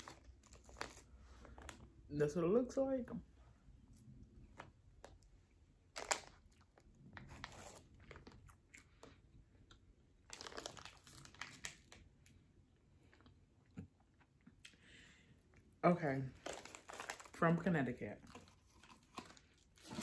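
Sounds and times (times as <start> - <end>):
plastic packet crinkling: 0.0 - 1.8, 5.9 - 8.6, 10.2 - 12.1, 16.4 - 20.0
soft chewing: 12.7 - 15.7, 18.2 - 20.0.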